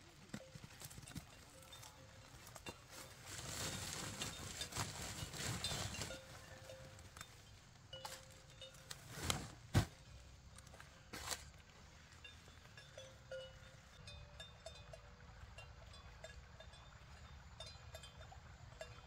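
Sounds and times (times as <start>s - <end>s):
corn cobs dropped into sack: 8.9s - 10.0s.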